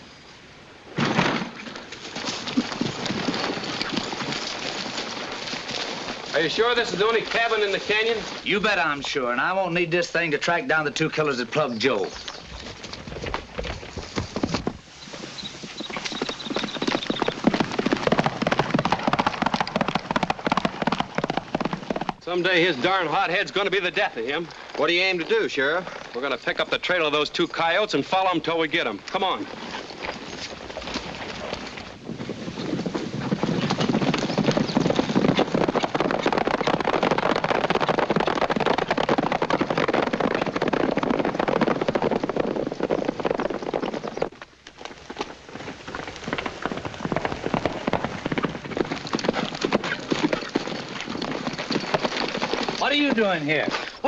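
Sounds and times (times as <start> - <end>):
horse hoofbeats on dirt: 1.6 - 54.0.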